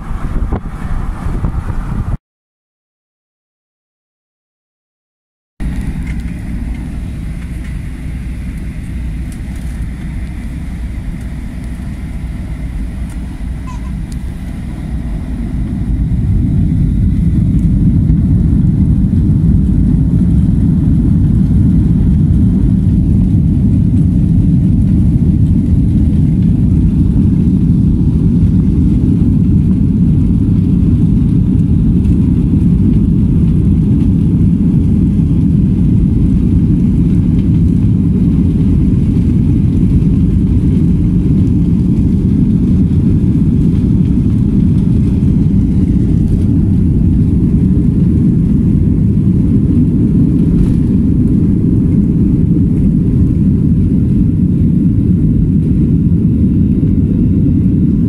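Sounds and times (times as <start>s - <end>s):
jet engines rumbling: 0.0s - 2.2s, 5.6s - 58.0s.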